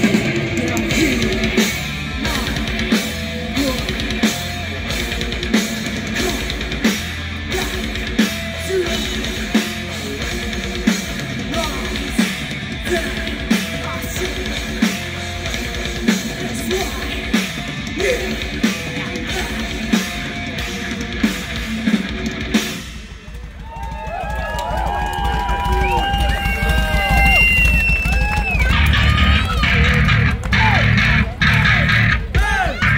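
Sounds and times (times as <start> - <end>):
heavy drum accents: 0.0 - 32.9
heavy metal band playing: 0.0 - 32.9.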